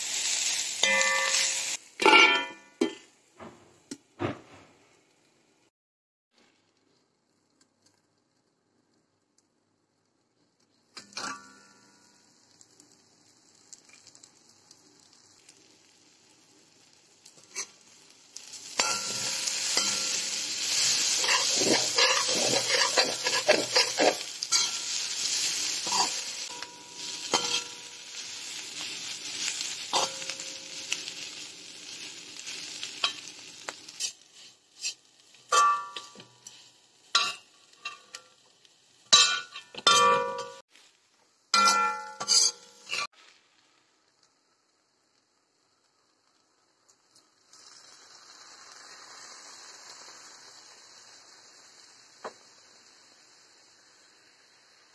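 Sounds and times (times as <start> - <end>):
food sizzling in wok: 0.0 - 5.4, 10.8 - 54.9
spatula scraping pan: 18.7 - 30.9, 33.0 - 38.2, 41.6 - 43.1.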